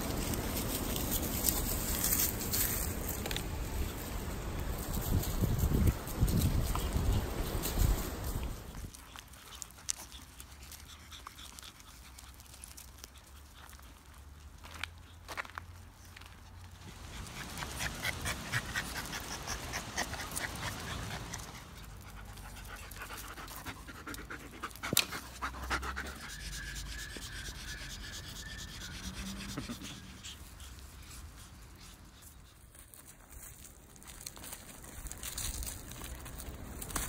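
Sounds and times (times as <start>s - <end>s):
dog panting: 8.9s - 14.2s, 16.8s - 33.6s.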